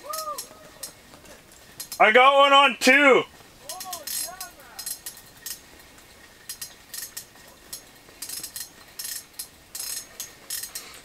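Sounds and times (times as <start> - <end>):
metal tackle clicking and clinking: 3.6 - 5.6, 6.4 - 10.9.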